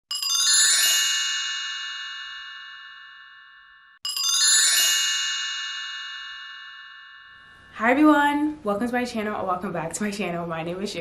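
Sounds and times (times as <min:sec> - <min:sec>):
bright bell chime: 0:00.1 - 0:07.9.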